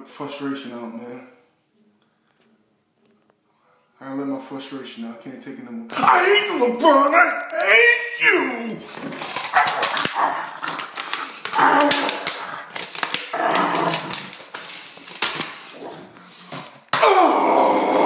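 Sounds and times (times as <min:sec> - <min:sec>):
man growling and yelling: 0:05.9 - 0:10.5, 0:11.5 - 0:12.5, 0:13.3 - 0:14.3, 0:17.0 - 0:18.0.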